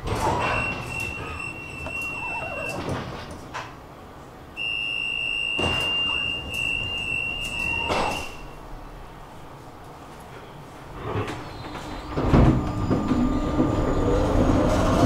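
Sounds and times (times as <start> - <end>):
sliding doors clunking: 0.0 - 4.0, 5.5 - 9.0, 10.8 - 15.0
tram door warning beep: 0.2 - 3.1, 4.6 - 8.8, 11.5 - 14.4.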